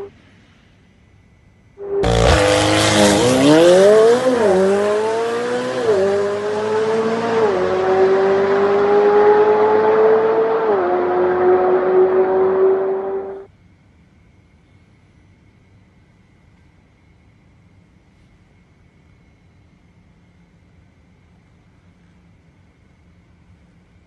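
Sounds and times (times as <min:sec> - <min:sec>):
car engine at full throttle: 0:01.8 - 0:13.5.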